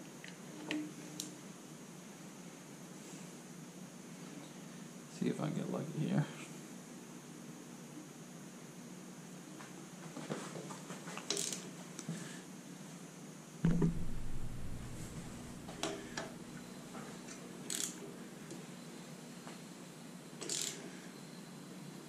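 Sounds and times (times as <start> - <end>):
heavy knock on metal: 13.6 - 15.4.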